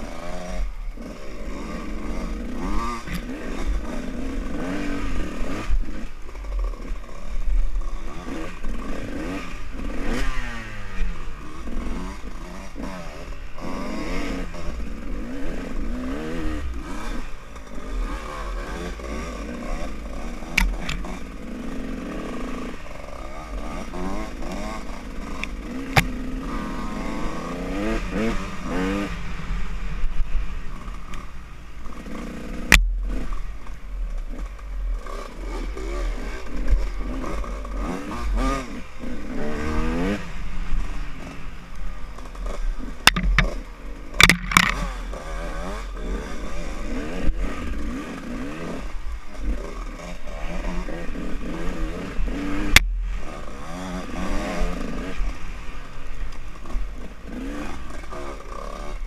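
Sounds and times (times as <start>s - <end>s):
dirt bike engine revving: 0.0s - 59.0s
sharp knocks: 43.1s - 43.6s, 44.2s - 44.8s.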